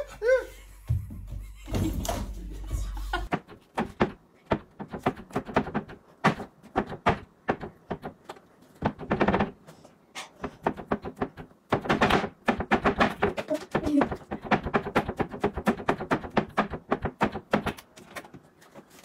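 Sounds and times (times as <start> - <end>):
hand tapping cabinet panels: 3.2 - 9.7, 10.4 - 18.4.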